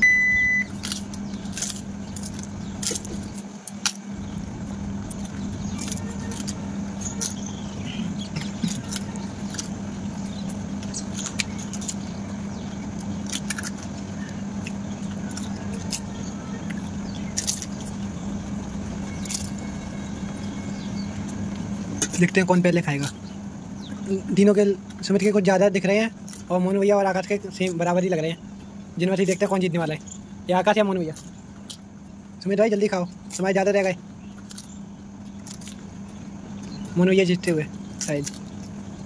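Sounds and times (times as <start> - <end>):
short beep: 0.0 - 0.7
steady low hum: 0.0 - 39.0
crisp shells crunching: 0.7 - 23.2, 33.2 - 39.0.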